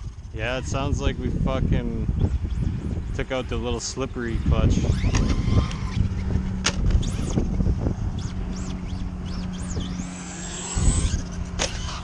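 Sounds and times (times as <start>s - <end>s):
steady low hum: 0.0s - 12.0s
rc truck motor whining: 2.2s - 12.0s.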